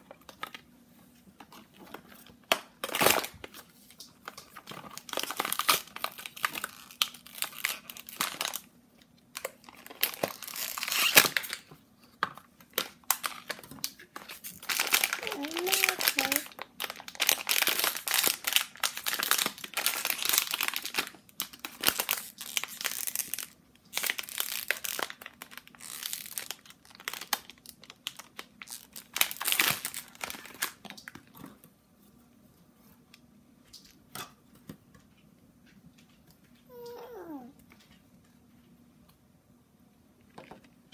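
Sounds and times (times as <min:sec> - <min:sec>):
foil bag crinkling: 0:01.6 - 0:08.7, 0:09.3 - 0:11.7, 0:12.7 - 0:31.3.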